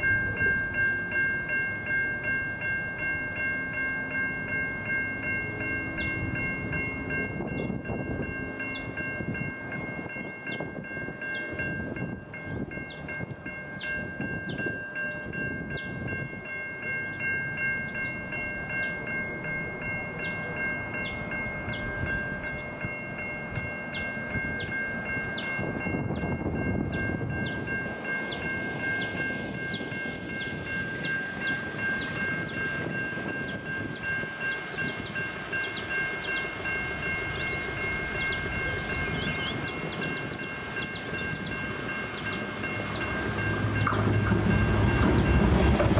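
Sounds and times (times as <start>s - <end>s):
electronic crossing bells ringing: 0.0s - 45.9s
train rumble on tracks: 0.0s - 45.9s.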